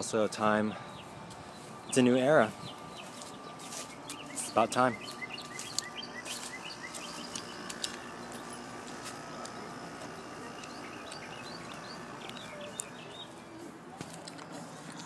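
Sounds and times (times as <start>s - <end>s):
outdoor background noise: 0.0s - 15.0s
bird chirping: 0.5s - 15.0s
sharp clicks: 6.9s - 13.0s.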